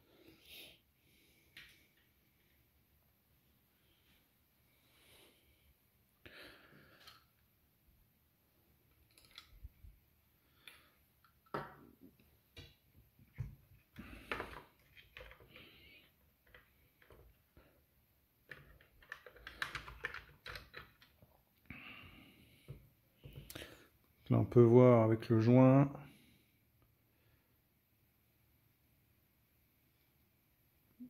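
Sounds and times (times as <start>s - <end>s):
plastic parts clicking and knocking: 8.9s - 9.7s, 12.5s - 17.6s, 18.4s - 21.4s.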